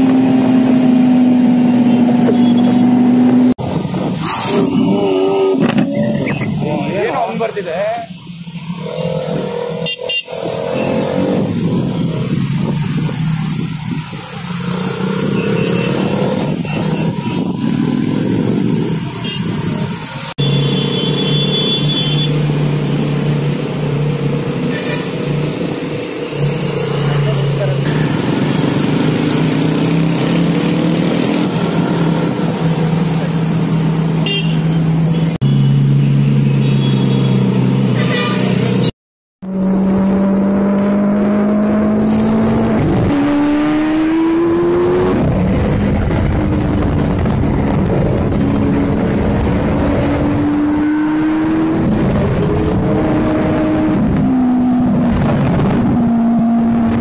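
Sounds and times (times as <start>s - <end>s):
supercar engines accelerating: 39.5s - 57.0s.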